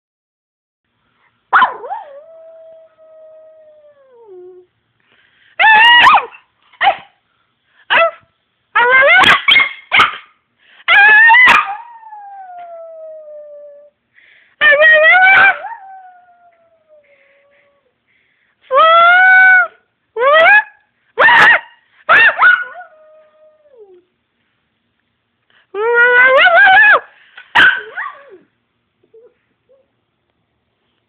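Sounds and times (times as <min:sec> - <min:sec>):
dog howling and yelping: 0:05.6 - 0:06.4, 0:10.9 - 0:13.9, 0:14.7 - 0:17.8.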